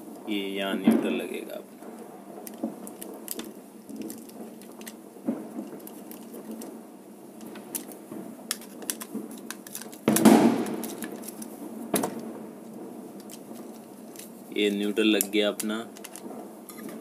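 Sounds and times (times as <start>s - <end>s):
wire and plastic handling clicks: 2.5s - 5.0s, 7.4s - 12.2s, 13.2s - 14.3s, 15.2s - 17.0s.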